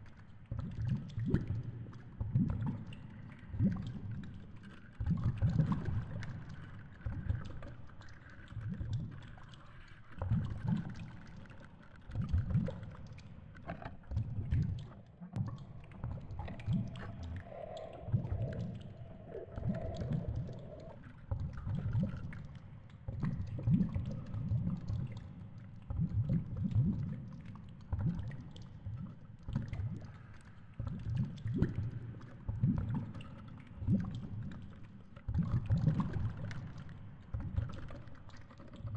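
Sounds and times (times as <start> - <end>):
underwater rumbling surges: 14.2 - 22.3
faint hum: 14.8 - 21.6.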